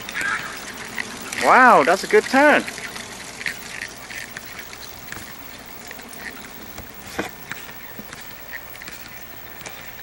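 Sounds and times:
low hum: 2.6s - 10.0s.

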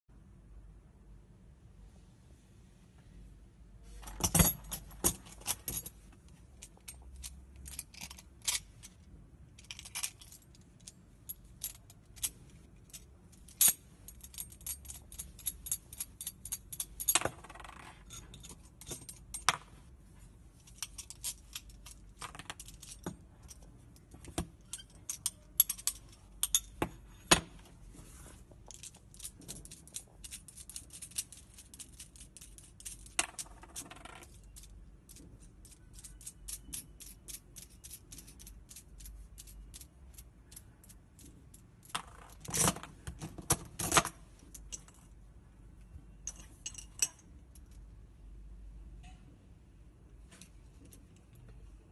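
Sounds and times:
metal parts clinking: 4.0s - 19.6s, 20.6s - 27.6s, 28.7s - 45.2s, 46.2s - 47.8s.

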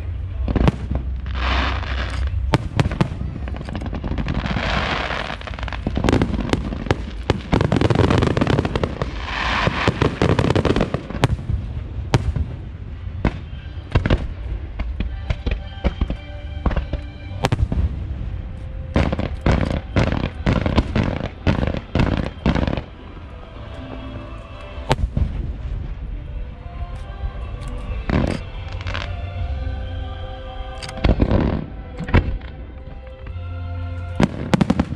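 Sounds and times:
fireworks banging: 0.0s - 23.3s, 34.2s - 34.9s
fireworks crackling: 0.0s - 29.6s, 34.0s - 34.9s.

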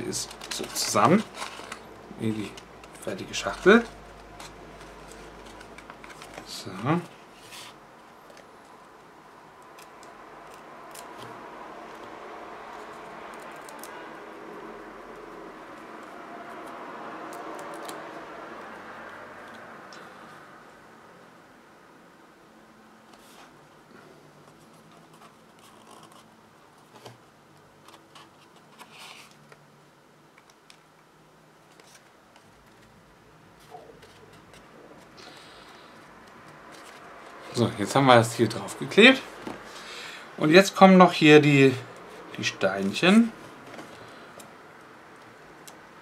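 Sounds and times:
rustling of cardstock: 0.0s - 9.1s, 24.4s - 27.2s, 27.8s - 29.6s, 31.6s - 39.8s
steady background hiss: 0.0s - 46.0s.

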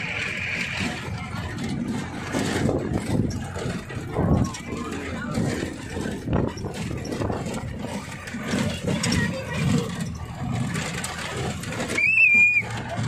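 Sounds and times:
jeep engine running: 0.0s - 13.0s.

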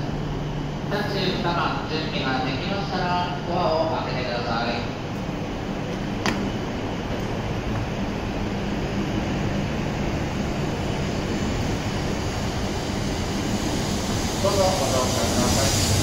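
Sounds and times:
train rumble and rushing: 0.0s - 16.0s.

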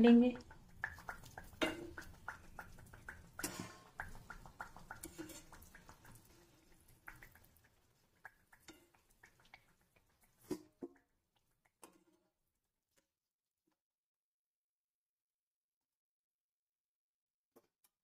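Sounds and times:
oil crackling and popping: 0.1s - 13.2s
skimmer knocking against pan: 0.3s - 7.6s.

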